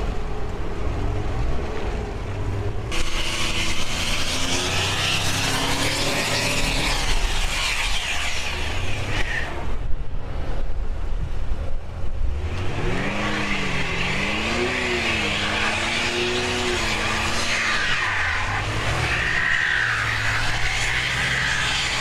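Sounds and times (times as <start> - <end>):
car engine revving: 0.9 - 9.8, 12.2 - 22.0
tyres churning slush: 2.9 - 9.7, 12.9 - 22.0.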